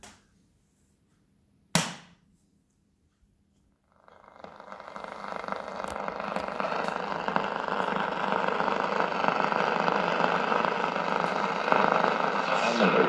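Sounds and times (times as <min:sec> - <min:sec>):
faint crackles: 0:03.9 - 0:13.0
radio static hiss: 0:04.2 - 0:13.0.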